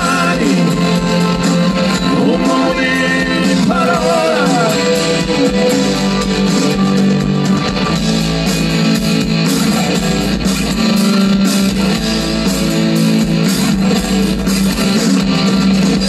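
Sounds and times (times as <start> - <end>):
rock band playing instrumental: 0.0 - 16.0.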